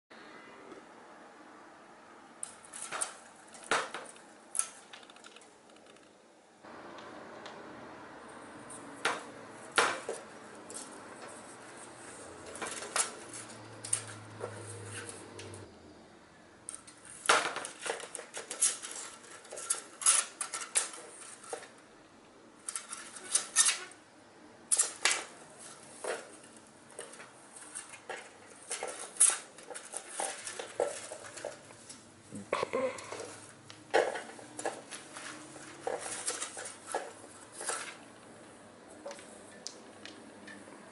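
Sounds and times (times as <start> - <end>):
window blind slats clattering: 2.4 - 6.0, 8.6 - 15.7, 16.7 - 21.9, 22.6 - 24.0, 24.7 - 32.1, 33.1 - 39.7.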